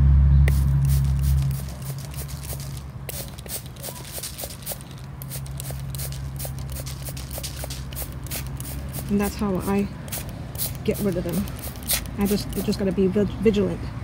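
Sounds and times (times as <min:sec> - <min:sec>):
loud low hum: 0:00.0 - 0:03.1
spray bottle squirts: 0:00.5 - 0:12.8.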